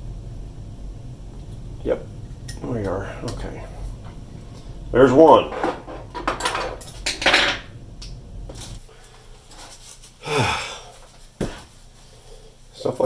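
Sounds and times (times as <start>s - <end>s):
man breathing heavily: 10.2s - 12.4s.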